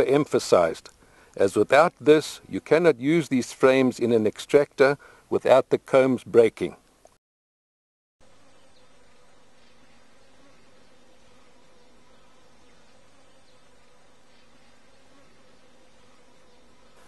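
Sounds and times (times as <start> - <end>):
honeybees buzzing: 8.2 - 17.0.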